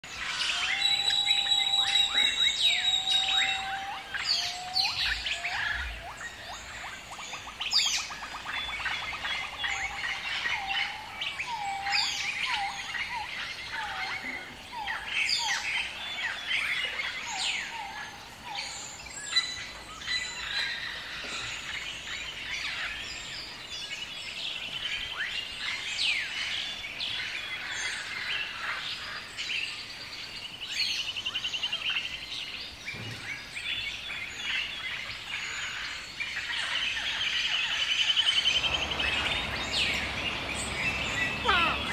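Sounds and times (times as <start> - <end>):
bird chirps whistles and trills: 0.4 - 13.7
bird repeated falling notes: 38.6 - 41.9.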